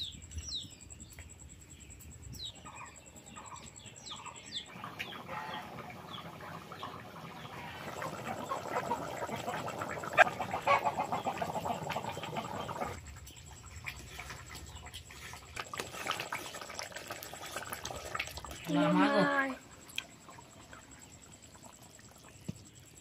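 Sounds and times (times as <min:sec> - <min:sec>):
curry bubbling and popping: 0:04.7 - 0:23.0.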